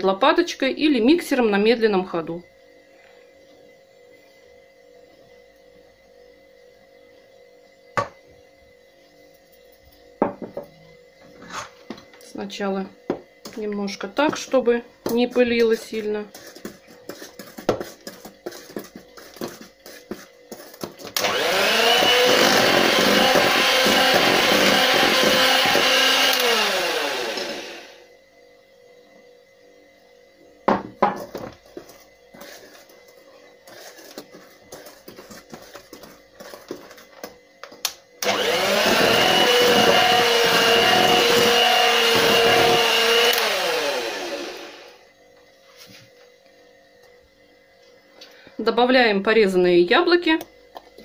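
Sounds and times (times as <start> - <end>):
electric hand mixer whining: 15.2 - 28.1, 38.2 - 45.1.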